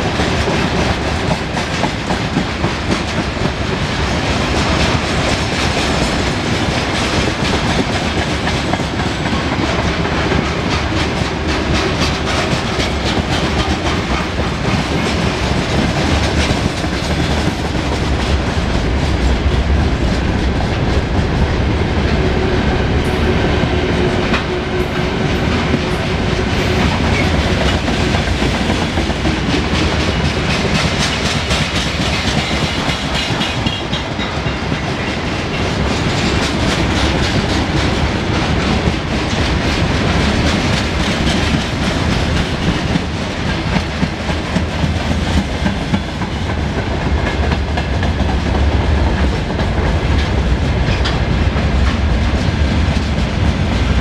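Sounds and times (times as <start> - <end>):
freight train rolling past: 0.0 - 54.0.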